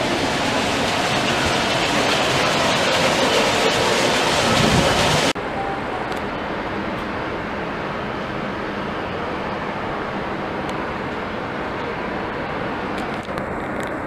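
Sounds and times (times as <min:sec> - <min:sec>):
loud rushing hiss: 0:00.0 - 0:05.4
dull steady noise: 0:00.0 - 0:14.0.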